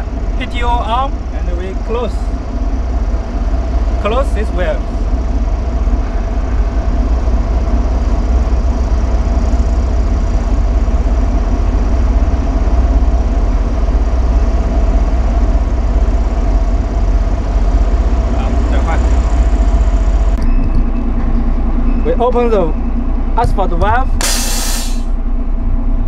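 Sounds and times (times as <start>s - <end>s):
hydraulic pump whine: 0.0s - 25.7s
truck engine droning: 0.0s - 26.0s.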